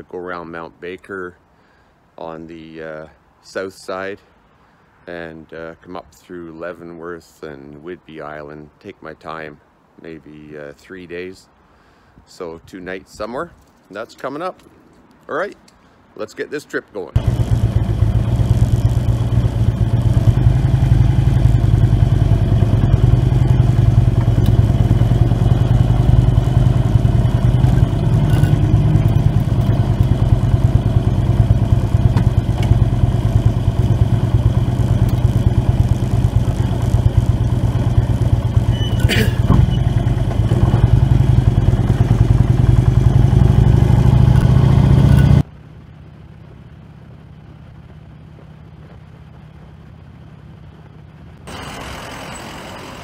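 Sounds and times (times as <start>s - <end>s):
sharp clatter: 17.2s - 30.3s, 33.5s - 42.7s
motorcycle engine rumbling: 17.2s - 53.0s.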